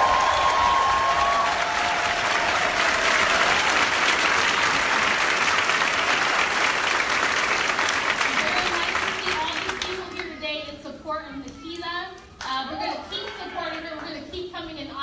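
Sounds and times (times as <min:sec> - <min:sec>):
long cheers: 0:00.0 - 0:05.0
audience applauding: 0:00.0 - 0:10.2.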